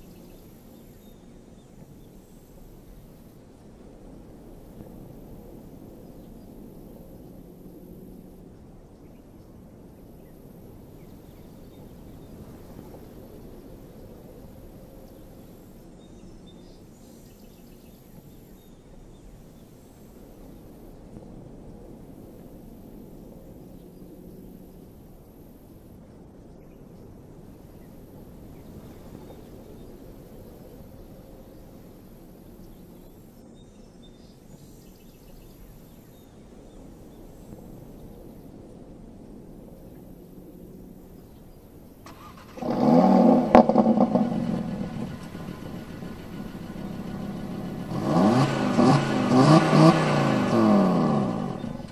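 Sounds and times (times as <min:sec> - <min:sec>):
low outdoor rumble: 0:35.3 - 0:51.9.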